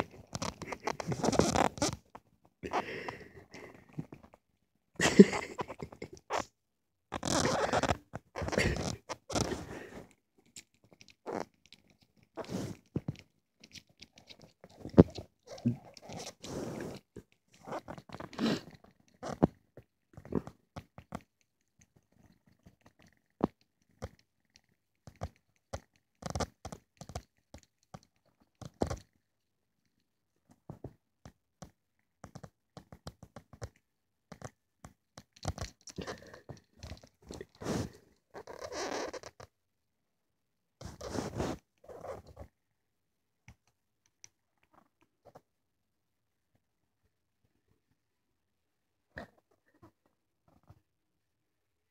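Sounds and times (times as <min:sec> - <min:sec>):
hand rubbing kitten fur: 0:07.3 - 0:10.1, 0:12.4 - 0:12.8, 0:16.1 - 0:17.1, 0:37.3 - 0:38.0, 0:40.8 - 0:42.2.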